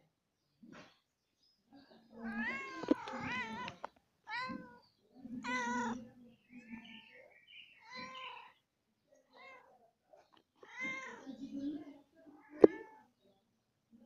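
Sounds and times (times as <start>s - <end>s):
cat meowing: 2.2s - 4.8s, 10.6s - 11.3s.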